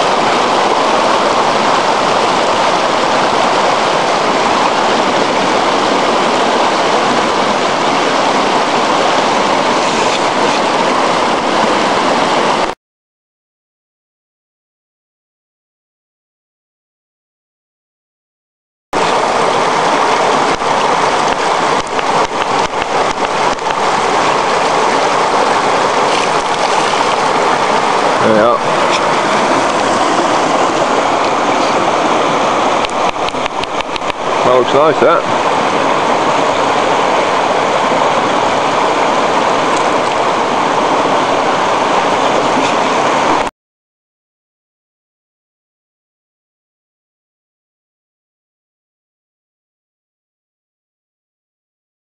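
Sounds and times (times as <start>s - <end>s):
river water rushing over stones: 0.0s - 12.8s, 19.0s - 43.5s.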